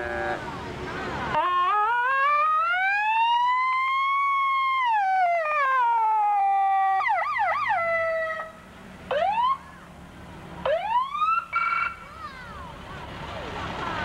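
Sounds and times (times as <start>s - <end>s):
emergency vehicle siren: 1.2s - 10.0s, 10.6s - 12.1s.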